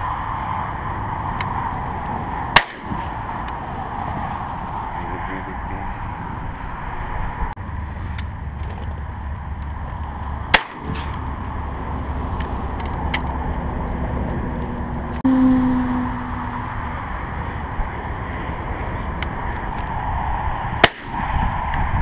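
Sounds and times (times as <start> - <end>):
shotgun shot: 2.6 - 3.1, 10.5 - 11.1, 20.8 - 21.2.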